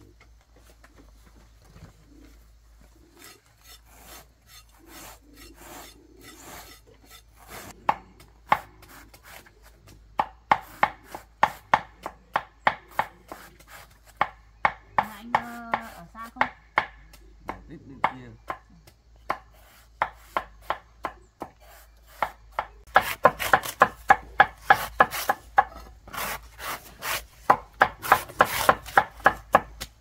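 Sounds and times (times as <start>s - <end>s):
soft scraping strokes: 1.7s - 7.8s
knife chopping on wooden board: 3.7s - 9.4s, 10.2s - 18.6s, 19.3s - 29.9s.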